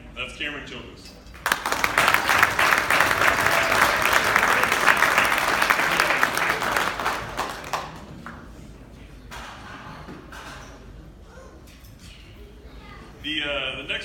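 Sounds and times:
audience applauding: 0:01.4 - 0:08.4.

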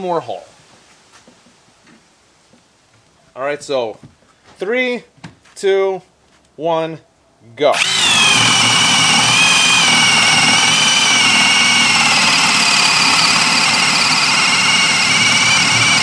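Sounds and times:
hammer drill boring into wood: 0:07.7 - 0:16.0.

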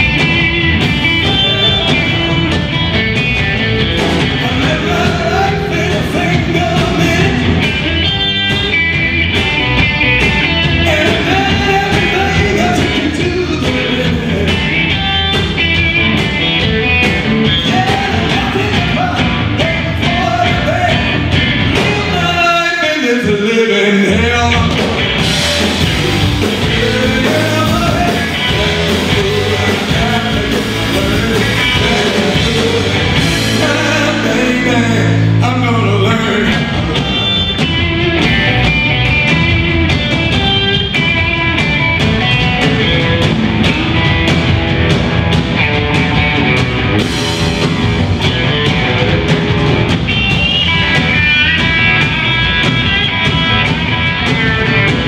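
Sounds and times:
live rock and roll band: 0:00.0 - 0:55.0
person singing: 0:00.8 - 0:02.8, 0:04.2 - 0:07.8, 0:10.7 - 0:14.8, 0:17.4 - 0:24.9, 0:25.6 - 0:38.4.

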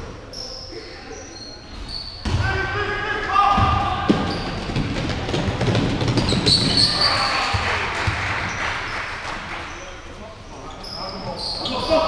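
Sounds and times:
basketball bouncing: 0:03.6 - 0:06.9, 0:07.5 - 0:08.6.

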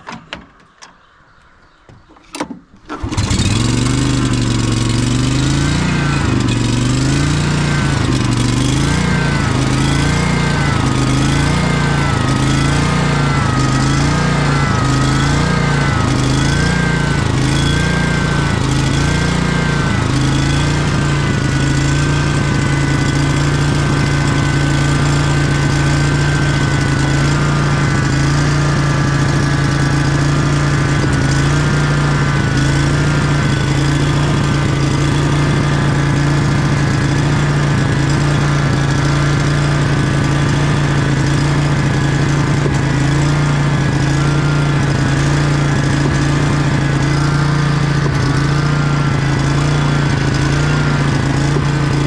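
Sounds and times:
mower engine surging: 0:02.8 - 0:52.0.

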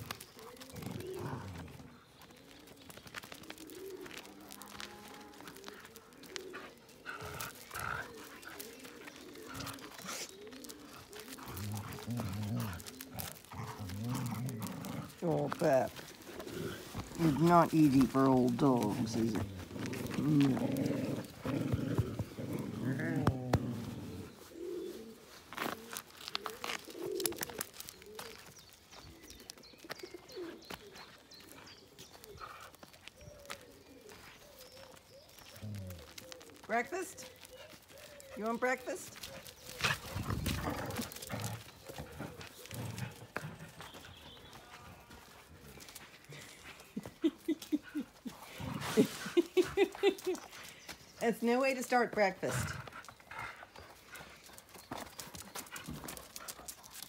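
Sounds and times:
dogs growling in play: 0:00.0 - 0:02.4, 0:03.3 - 0:25.8, 0:31.5 - 0:44.2, 0:44.9 - 0:50.8, 0:52.4 - 0:54.7
pigeon cooing: 0:00.0 - 0:18.2, 0:18.8 - 0:50.8
paws scuffing on gravel: 0:00.0 - 0:57.0.

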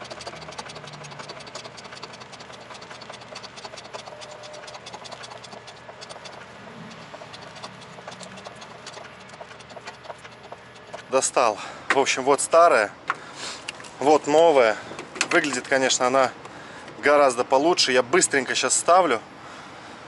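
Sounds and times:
engine idling with ticking clatter: 0:00.0 - 0:13.9.

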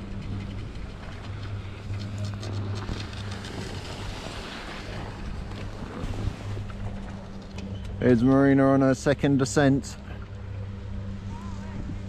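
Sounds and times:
steady low hum: 0:00.0 - 0:12.0
skis scraping over snow: 0:00.4 - 0:07.2.

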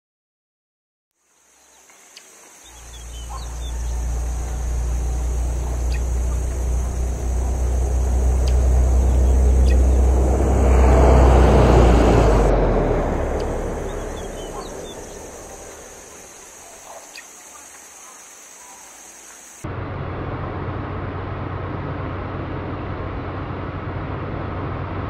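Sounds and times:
faint bird chirps: 0:01.3 - 0:10.2, 0:13.3 - 0:19.6
car passing by: 0:01.3 - 0:16.9.

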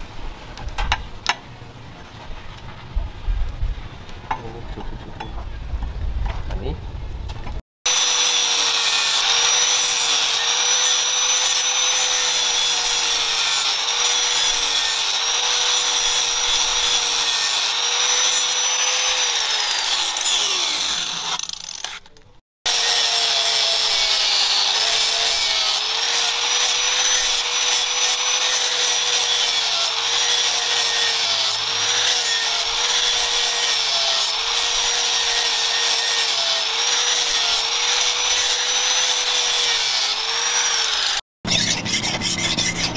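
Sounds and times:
angle grinder grinding steel: 0:07.9 - 0:42.9.

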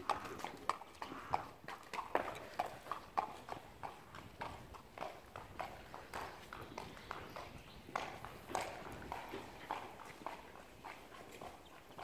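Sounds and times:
hooves clip-clopping on tarmac: 0:00.0 - 0:12.0.

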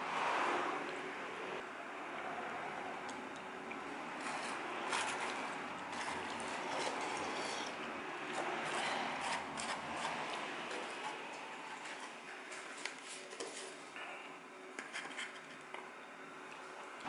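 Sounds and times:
room hum: 0:00.0 - 0:17.0.

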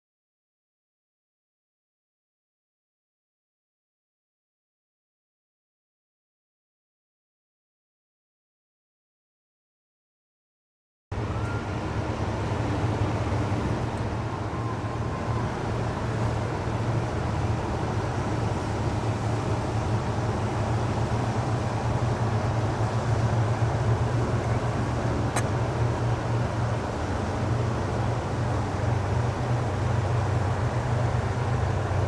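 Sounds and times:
motorboat engine running: 0:11.2 - 0:32.0
water rushing from wake: 0:11.2 - 0:32.0.

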